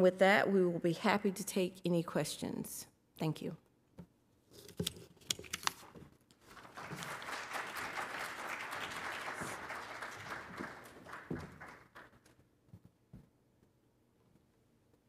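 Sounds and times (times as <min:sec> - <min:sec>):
audience applauding: 0:06.4 - 0:12.4.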